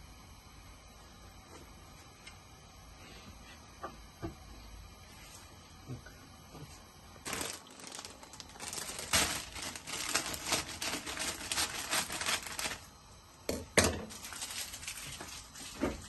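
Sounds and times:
plastic bag crinkling: 7.2 - 12.9, 14.0 - 16.0.

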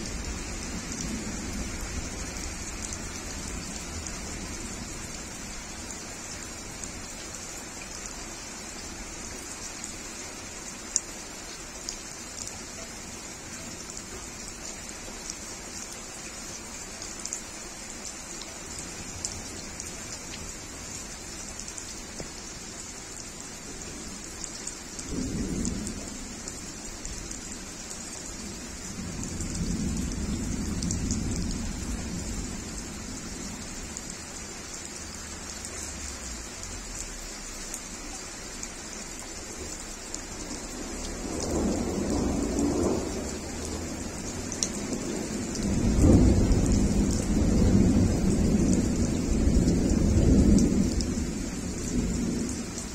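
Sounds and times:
rain pattering on leaves: 0.0 - 52.9
thunder rumbling: 40.7 - 52.8.

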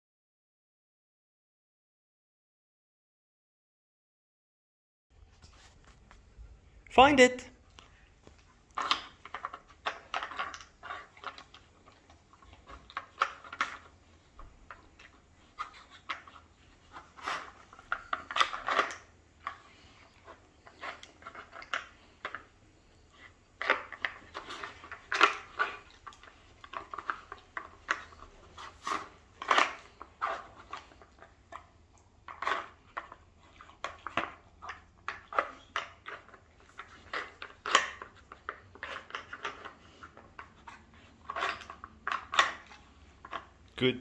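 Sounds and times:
wooden puzzle pieces clacking: 8.7 - 22.5, 23.6 - 43.6.

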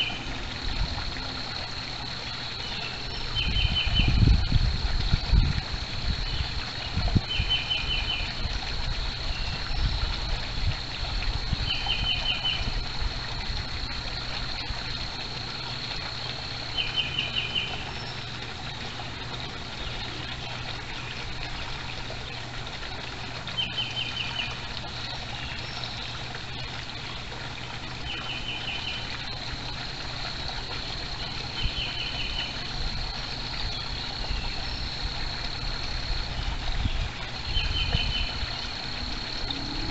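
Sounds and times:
trickle of pond water: 0.0 - 39.9
songbird trilling: 2.6 - 4.2
thin high tone: 38.9 - 39.9.

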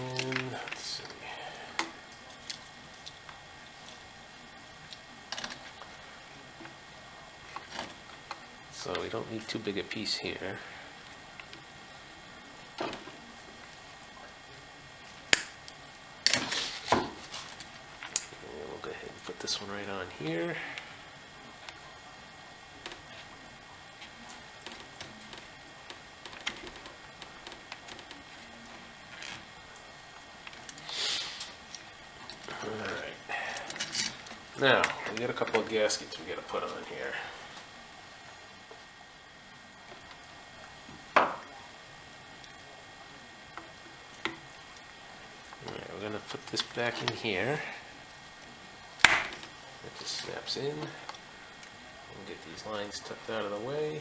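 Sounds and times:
small parts clicking and tapping: 24.0 - 28.2.

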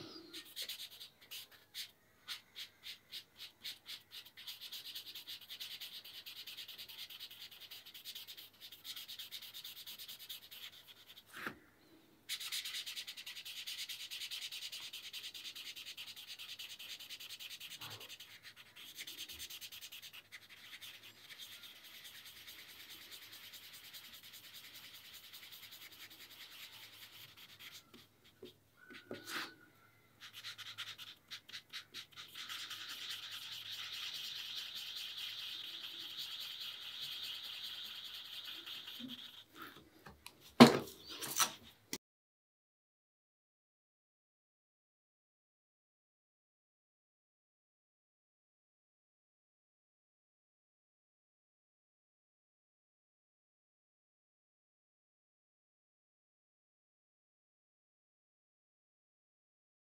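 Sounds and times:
marker scratching on paper: 0.0 - 11.6, 12.3 - 39.9.

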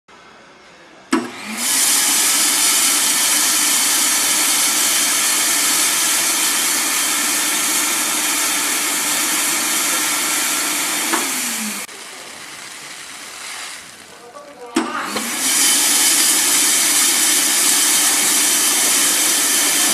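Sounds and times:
suction motor humming: 1.2 - 19.9
grain pouring into box: 11.4 - 14.8.

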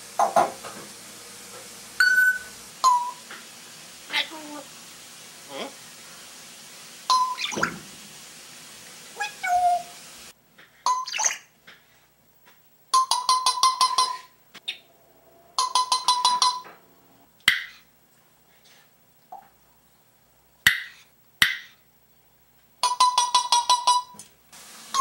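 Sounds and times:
parrot pulsing beep-like call: 2.0 - 3.2, 7.1 - 7.6, 9.2 - 9.9, 10.9 - 11.5, 13.0 - 14.9
parrot chirps: 7.1 - 7.7, 9.2 - 10.0, 10.9 - 11.5, 13.7 - 14.9, 17.5 - 17.9.

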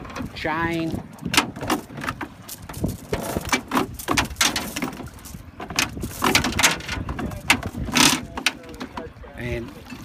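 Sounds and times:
water splashing against hull: 0.0 - 10.0
rope and chain knocking on boat: 1.2 - 9.1.

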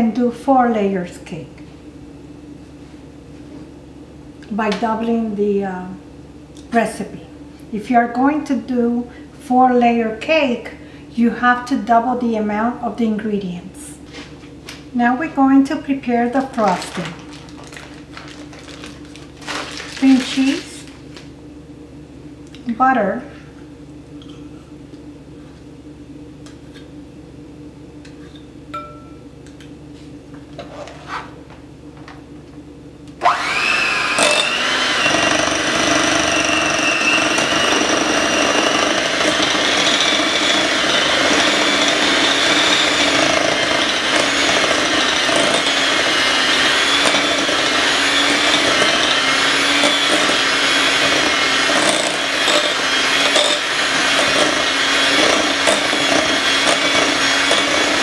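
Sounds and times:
electric hand mixer whirring: 16.4 - 20.9, 33.2 - 58.0.

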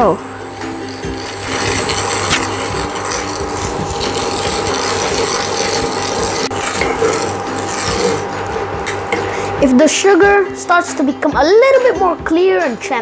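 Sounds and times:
sugar scraping in a frying pan: 0.3 - 9.1.

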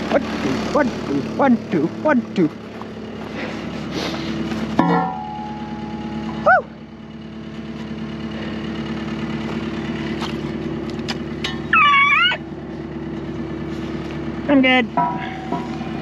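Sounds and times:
truck engine idling: 0.0 - 16.0
high-pitched sliding calls: 11.7 - 12.4.

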